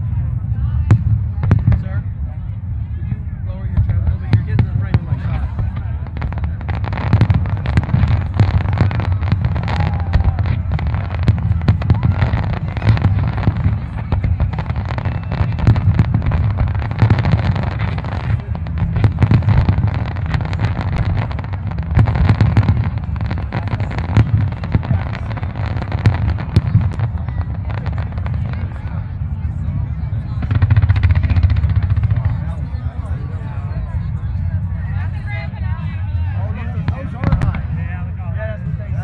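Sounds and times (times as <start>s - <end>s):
fireworks booming: 0.0s - 39.0s
fireworks popping and crackling: 0.5s - 2.6s, 3.6s - 39.0s.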